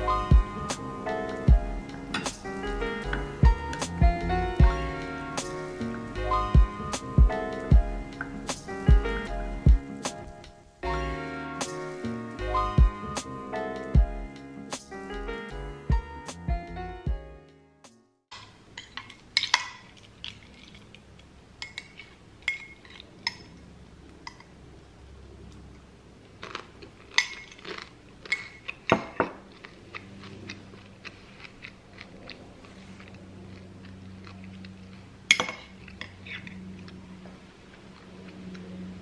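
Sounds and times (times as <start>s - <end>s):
cutlery clinking on dishes: 2.1s - 2.4s, 18.3s - 20.8s, 21.6s - 23.6s, 27.1s - 27.6s, 35.3s - 36.6s
spoon stirring in ceramic mug: 21.6s - 23.5s.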